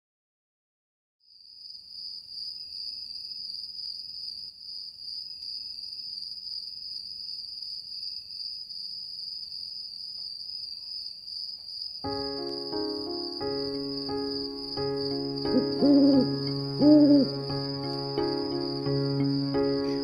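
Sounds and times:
crickets trilling: 1.3s - 20.0s.

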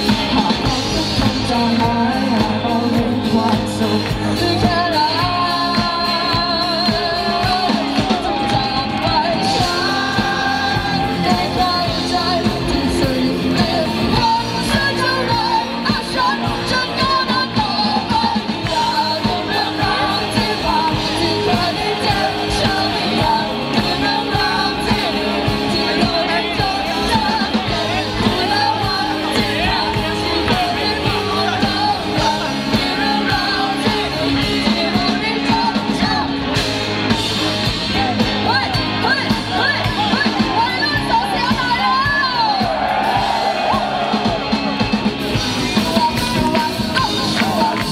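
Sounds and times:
boy singing into a microphone: 0.0s - 36.3s
drums: 0.0s - 47.9s
electric guitar: 0.0s - 47.9s.

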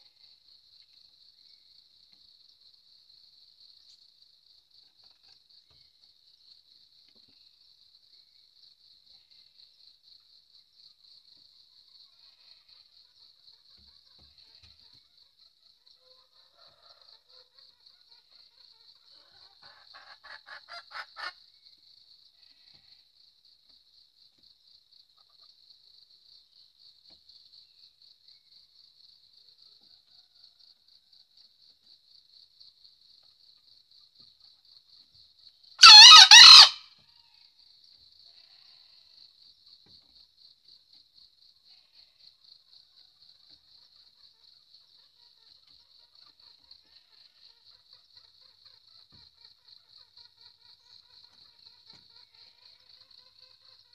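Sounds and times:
faint insect trill: 0.0s - 53.9s
chicken clucking: 16.0s - 21.4s
rooster crowing: 35.8s - 36.9s.

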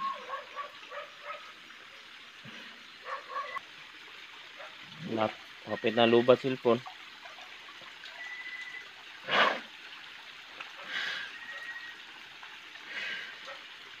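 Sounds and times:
stream water trickling: 0.0s - 14.0s
faint high-pitched chirps: 8.1s - 8.9s.

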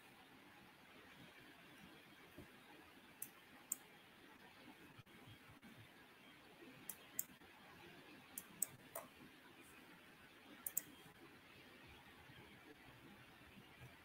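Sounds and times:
computer mouse clicking: 3.2s - 3.9s, 6.8s - 7.3s, 8.4s - 9.1s, 10.6s - 11.0s.

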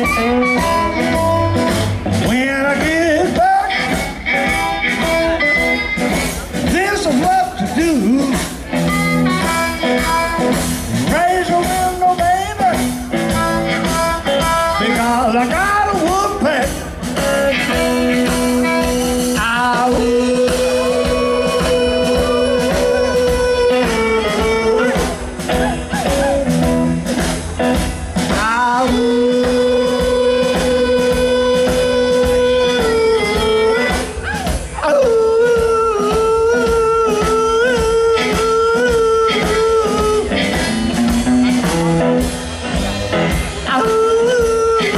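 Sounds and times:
amplified harmonica solo: 0.0s - 6.4s, 8.1s - 16.4s, 17.2s - 27.0s, 28.6s - 34.5s
drums: 0.0s - 44.9s
electric guitar: 0.0s - 44.9s
upright bass: 0.0s - 44.9s.

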